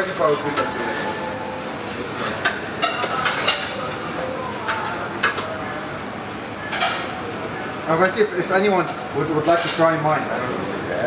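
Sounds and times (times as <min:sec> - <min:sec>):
metal utensils clattering: 0:00.0 - 0:05.5
kitchen background noise: 0:00.0 - 0:11.0.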